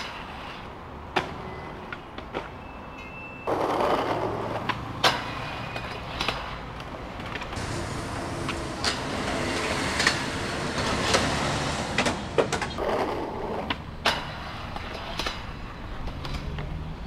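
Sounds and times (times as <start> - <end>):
skateboard grinding on metal rail: 0.0 - 0.7, 3.5 - 6.6, 7.3 - 16.4
city traffic noise: 0.0 - 17.0
skateboard clattering on concrete: 3.5 - 7.6, 12.0 - 16.7.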